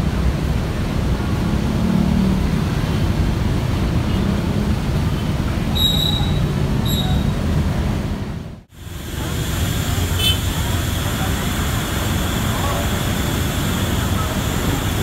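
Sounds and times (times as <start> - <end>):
brief high squeaks: 5.7 - 7.4
diesel engine idling: 8.7 - 15.0.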